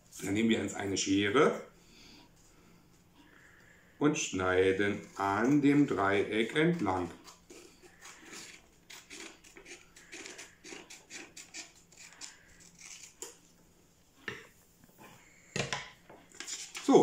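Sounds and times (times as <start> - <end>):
scissors snipping paper: 7.2 - 13.4.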